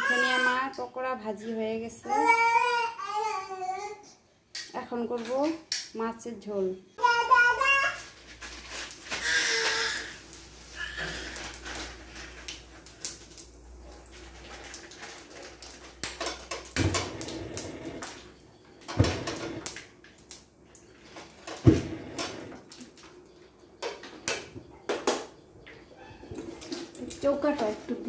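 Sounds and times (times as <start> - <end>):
pans and utensils clanking: 13.8 - 19.9.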